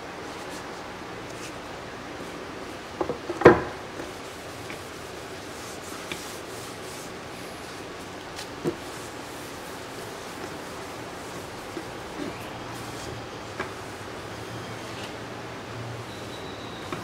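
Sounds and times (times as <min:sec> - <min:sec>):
paper towel rubbing: 0:04.0 - 0:14.0.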